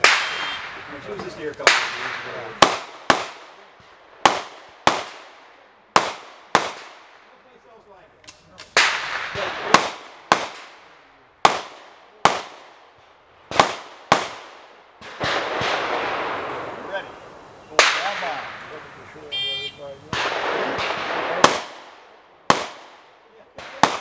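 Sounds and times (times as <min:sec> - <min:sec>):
pistol shots echoing: 0:01.6 - 0:07.2, 0:08.7 - 0:12.9, 0:13.5 - 0:16.7, 0:20.1 - 0:24.0.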